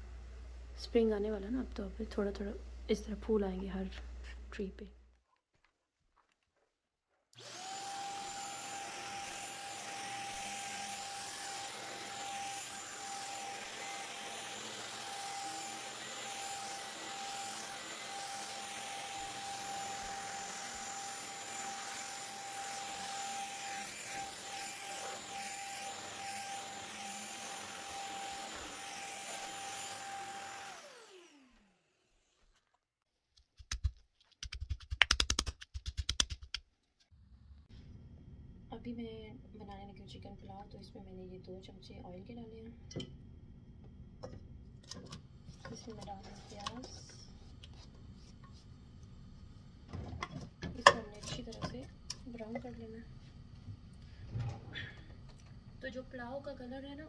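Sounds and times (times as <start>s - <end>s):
vacuum cleaner whining: 7.4s - 32.5s, 53.3s - 55.6s.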